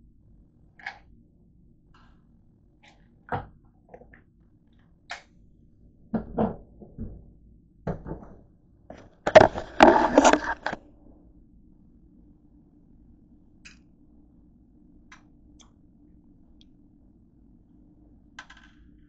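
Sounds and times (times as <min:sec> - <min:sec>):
camera handling clatter: 0:08.9 - 0:10.8.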